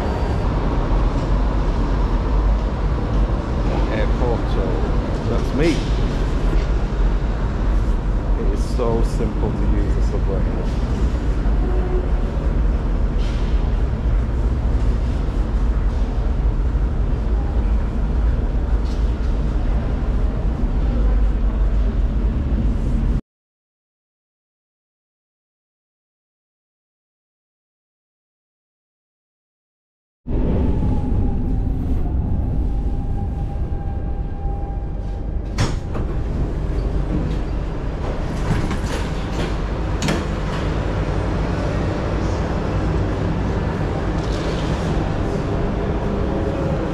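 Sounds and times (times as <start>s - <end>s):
steady low rumble: 0.0s - 23.2s, 30.3s - 46.9s
sliding doors opening with clunk: 35.4s - 41.2s.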